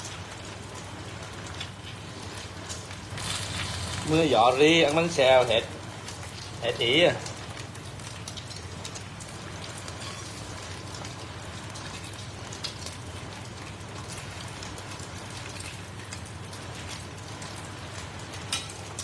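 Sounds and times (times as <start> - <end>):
batter sizzling in oil: 0.0 - 19.0
oil popping: 1.7 - 5.2.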